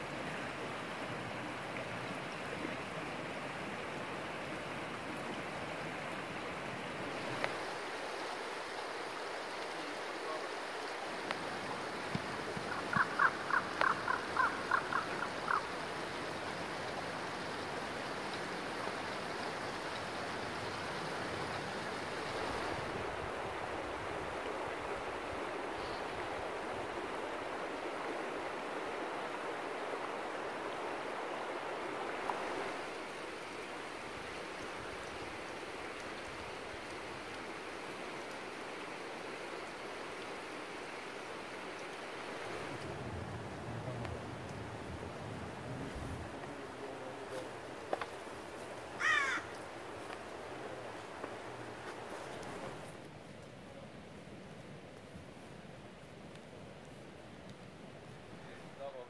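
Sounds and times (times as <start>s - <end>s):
river rushing over stones: 0.0s - 59.0s.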